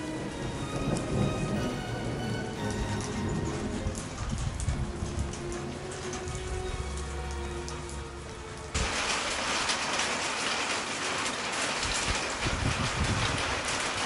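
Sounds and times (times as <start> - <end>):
soft music: 0.0 - 8.8
steady rainfall: 0.0 - 14.0.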